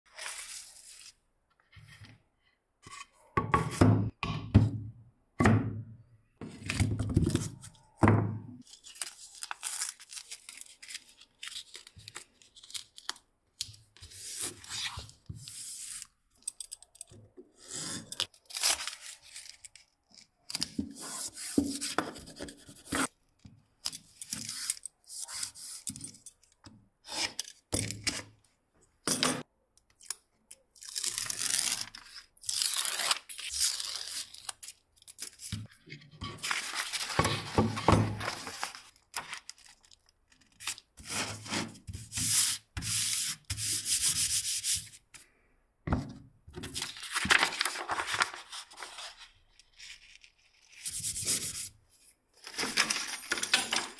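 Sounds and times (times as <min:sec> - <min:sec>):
paper sheets rustling: 0:36.3 - 0:39.8, 0:46.6 - 0:51.6, 0:52.4 - 0:53.9.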